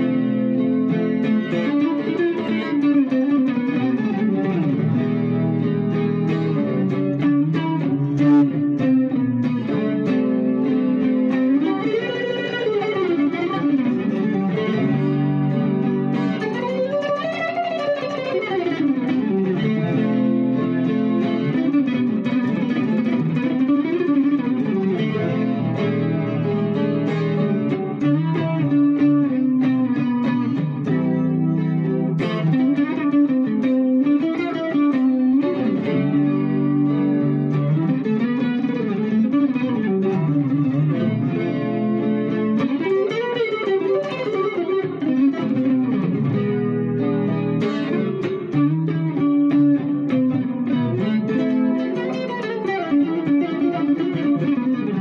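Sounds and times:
electric guitar slow instrumental: 0.0 - 55.0.

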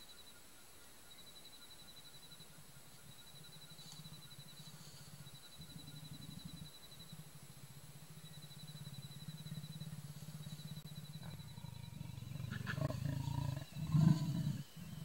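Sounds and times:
leopard growling: 3.0 - 15.0.

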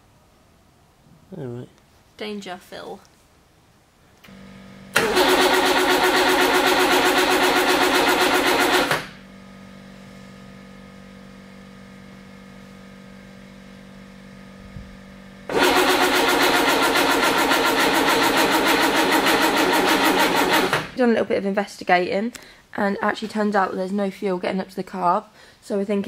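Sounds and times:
engine cranking without firing: 5.0 - 9.0.

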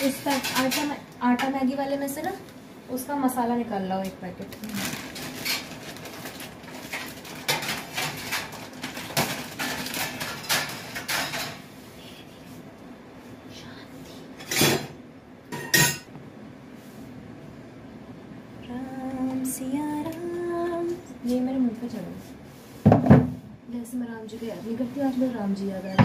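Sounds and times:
steel utensils and dishes clattering: 0.0 - 1.0, 6.8 - 11.6, 14.4 - 16.1.

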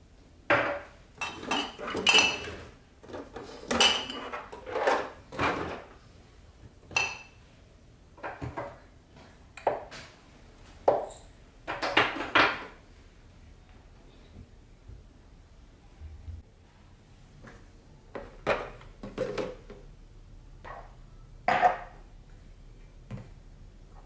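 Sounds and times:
glass jars clinking: 0.7 - 2.7, 6.9 - 7.4.

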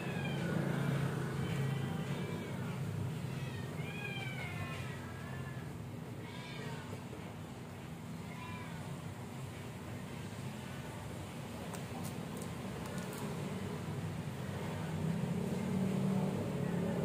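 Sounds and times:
cat meowing: 0.0 - 6.9.

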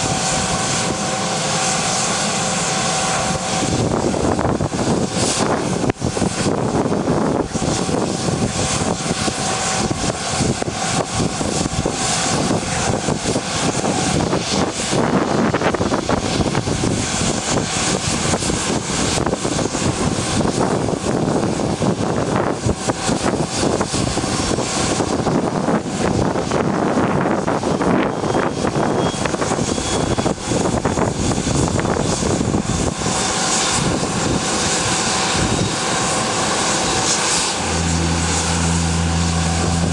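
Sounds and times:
jet engines running: 0.0 - 39.9
faint rising whine: 35.3 - 39.9.

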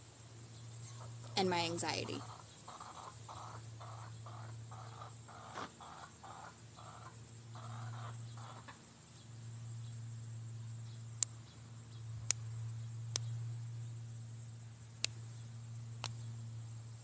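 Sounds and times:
faint high whine: 0.0 - 17.0
steady low hum: 0.0 - 17.0
hens clucking: 0.9 - 8.8
sharp clicks: 13.1 - 13.3, 15.0 - 15.2.

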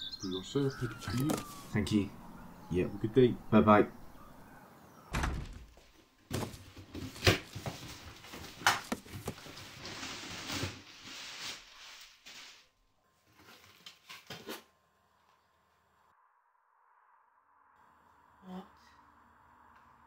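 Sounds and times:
cardboard knocks and scrapes: 1.0 - 1.7, 6.3 - 10.0
cardboard rustling and tearing: 1.0 - 1.7, 6.3 - 12.6.

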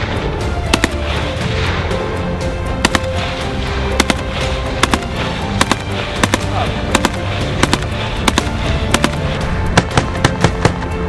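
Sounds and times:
background music: 0.0 - 11.0
rifle shots: 0.7 - 1.2, 2.8 - 3.3, 3.9 - 10.4.

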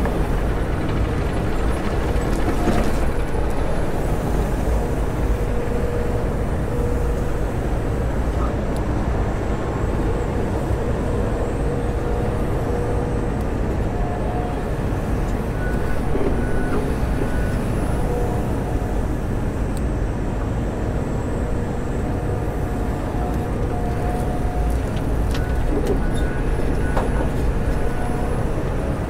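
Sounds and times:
excavator engine and hydraulics: 0.0 - 29.0.

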